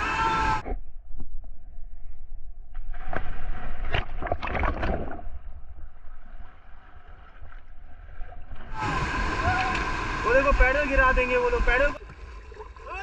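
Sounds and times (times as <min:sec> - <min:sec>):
water splashing: 0:02.9 - 0:13.0
whitewater rapids rushing: 0:08.7 - 0:12.0.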